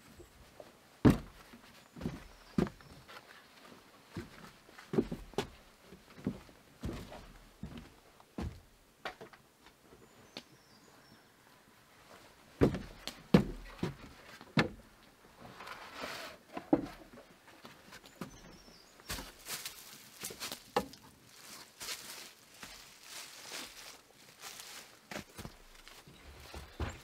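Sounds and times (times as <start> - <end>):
footsteps on bare ground: 1.0 - 5.6, 6.2 - 8.7, 12.6 - 14.8, 17.6 - 27.0.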